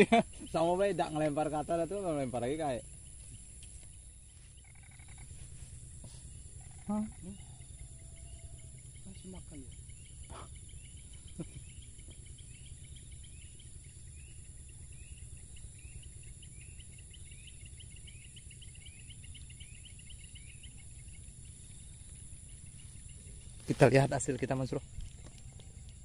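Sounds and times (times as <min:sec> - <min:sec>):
insect chirps rising: 0:00.0 - 0:26.0
insects droning: 0:00.0 - 0:26.0.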